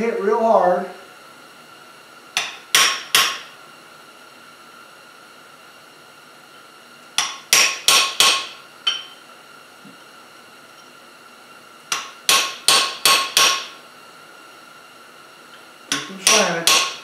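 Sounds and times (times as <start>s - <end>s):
hammer striking chisel on steel: 2.4s - 3.5s, 7.2s - 9.2s, 11.9s - 13.8s, 15.9s - 17.0s.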